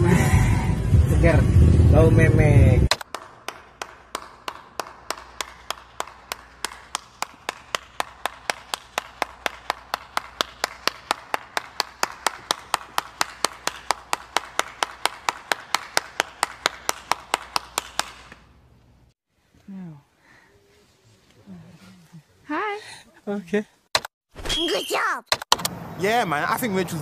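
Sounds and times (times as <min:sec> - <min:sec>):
person clapping: 0:02.9 - 0:18.4.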